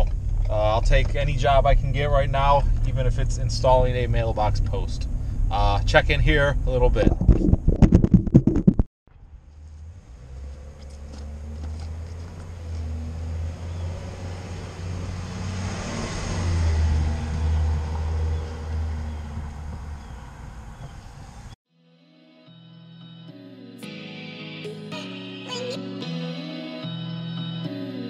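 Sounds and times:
low engine hum: 0.0s - 7.7s, 9.1s - 21.6s
vehicle passing on street: 9.1s - 21.6s.

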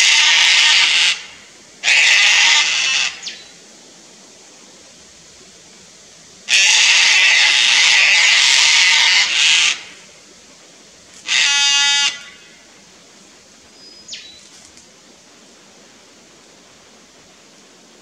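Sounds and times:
cockatoos screeching: 0.0s - 3.4s, 6.5s - 10.0s.

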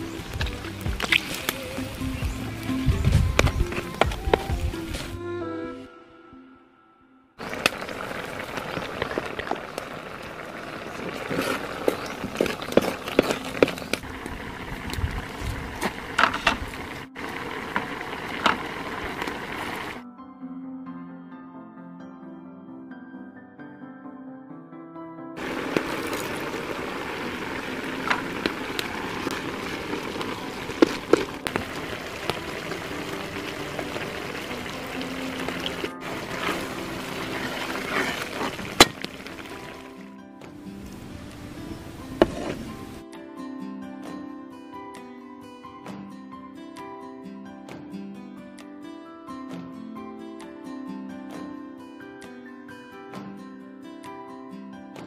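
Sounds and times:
wooden spatula stirring: 7.4s - 14.1s, 25.4s - 40.0s
liquid bubbling in a pan: 7.4s - 20.0s, 25.4s - 40.0s.

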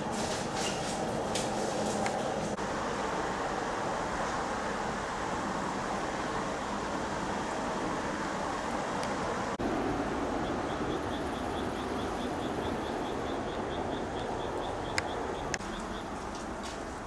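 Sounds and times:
steady rushing noise: 0.0s - 17.0s
faint high insect chirp: 9.6s - 16.2s.

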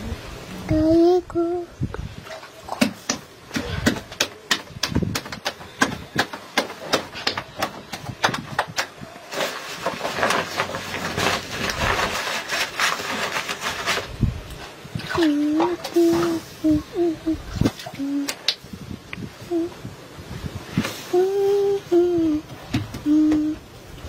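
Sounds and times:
dough slapping between hands: 2.7s - 9.0s
rustling hiss: 8.0s - 24.0s.

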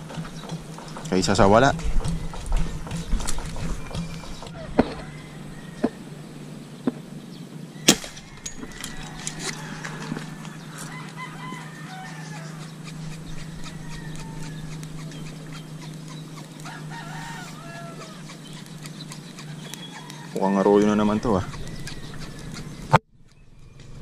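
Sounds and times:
low hum: 0.0s - 20.0s
rooster crowing: 3.8s - 6.3s, 7.7s - 15.8s, 16.6s - 18.4s, 19.4s - 22.5s.

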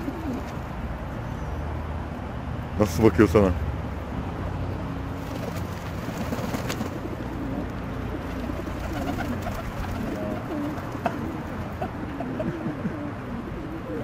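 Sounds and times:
pigeons cooing: 0.0s - 0.8s, 5.3s - 14.0s.

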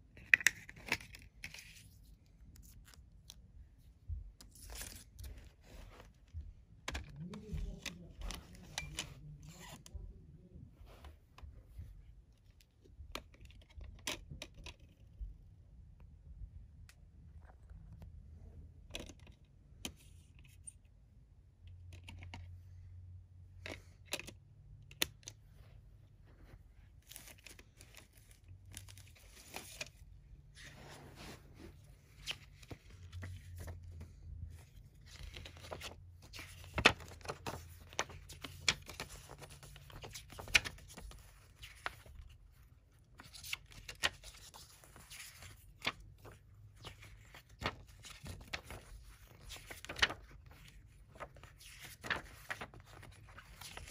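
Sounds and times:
booklet pages turning: 0.2s - 10.0s, 26.4s - 53.9s.

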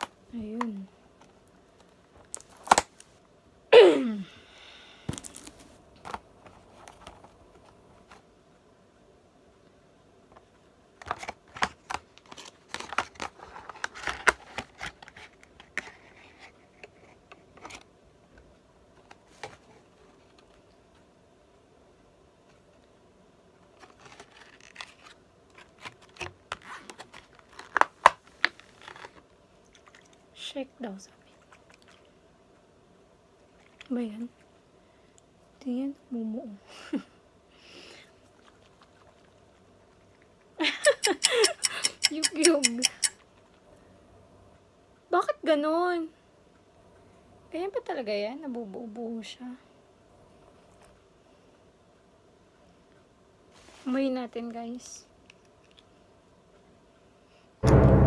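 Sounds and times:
packaging being handled: 5.1s - 7.3s, 23.8s - 29.3s
loud sound falling in pitch: 57.6s - 58.0s.

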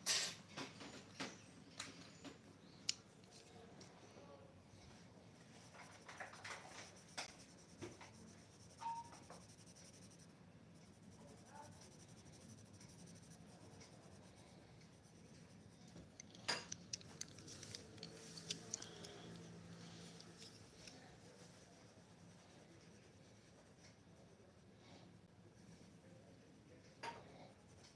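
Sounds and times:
pencil scratching on paper: 5.4s - 16.1s, 17.5s - 26.2s, 27.4s - 27.9s.

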